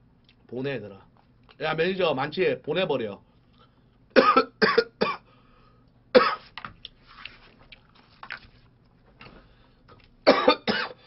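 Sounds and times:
man clearing throat: 4.2s - 5.3s, 10.3s - 11.0s
man coughing: 4.2s - 5.3s, 6.2s - 6.4s, 10.2s - 11.0s.

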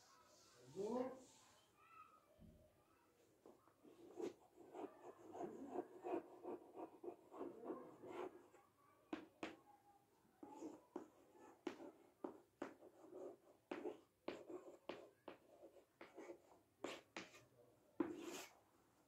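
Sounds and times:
chalk tapping and scraping on chalkboard: 9.1s - 9.6s, 10.4s - 18.5s.

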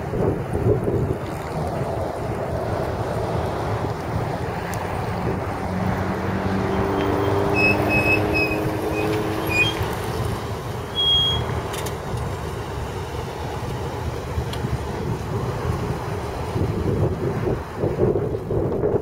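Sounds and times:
car engine running: 0.3s - 17.3s
short high chirps: 7.2s - 9.8s, 10.9s - 11.5s.

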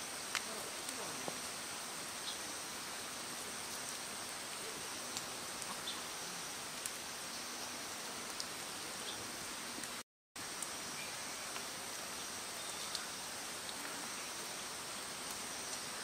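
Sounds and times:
steady hiss: 0.0s - 16.0s
soft ticks: 12.9s - 13.1s.

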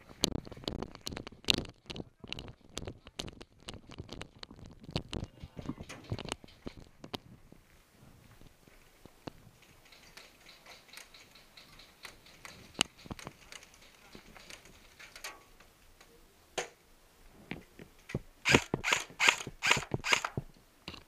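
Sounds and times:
light ticks and clicks: 9.0s - 16.7s
airsoft rifle firing: 18.4s - 20.4s.

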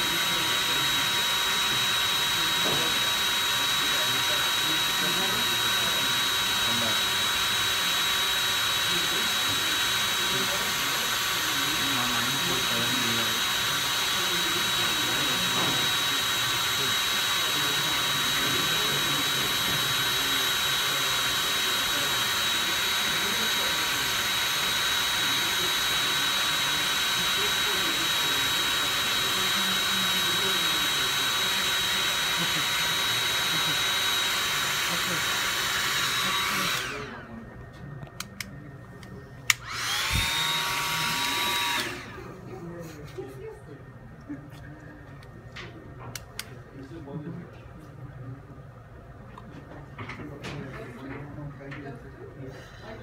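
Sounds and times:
hair dryer blowing air: 0.0s - 37.4s, 39.5s - 42.3s
hair dryer motor whine: 0.0s - 37.4s, 38.2s - 42.3s
hair dryer switch click: 39.5s - 40.4s.

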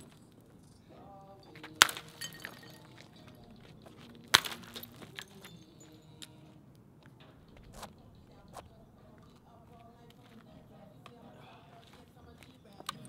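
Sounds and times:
broken glass tinkling: 0.0s - 6.6s
glass bottles smashing: 1.3s - 3.4s, 4.3s - 6.3s.

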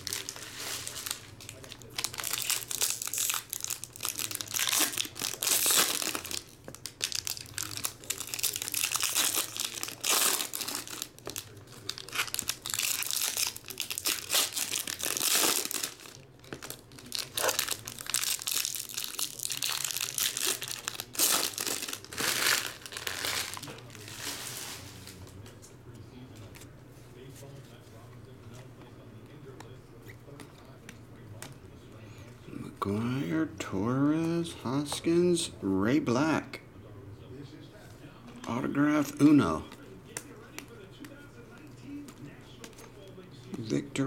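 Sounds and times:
foil wrappers tearing and crinkling: 0.0s - 25.2s.

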